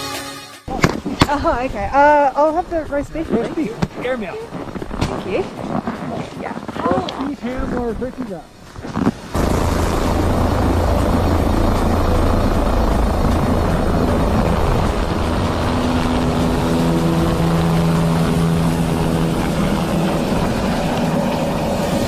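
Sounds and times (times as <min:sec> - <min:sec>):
rotor wash buffeting microphone: 0:00.7 - 0:22.0
helicopter engine whine: 0:09.3 - 0:22.0
helicopter rotor thumping: 0:09.3 - 0:22.0.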